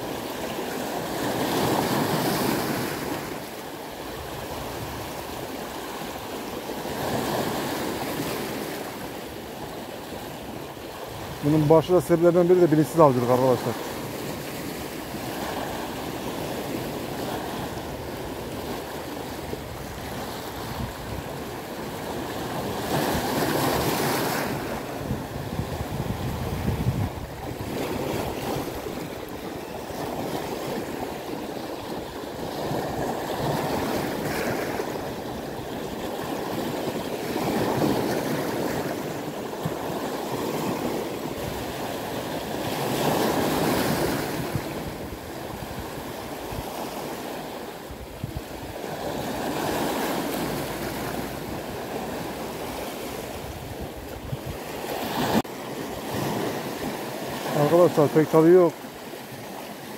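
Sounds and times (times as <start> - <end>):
small waves breaking over rocks: 0.0 - 59.9.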